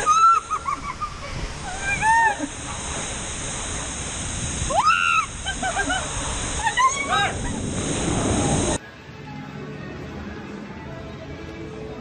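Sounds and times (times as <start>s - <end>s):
people screaming excitedly: 0.0s - 0.7s, 4.7s - 7.7s
rushing water on a slide: 0.0s - 8.8s.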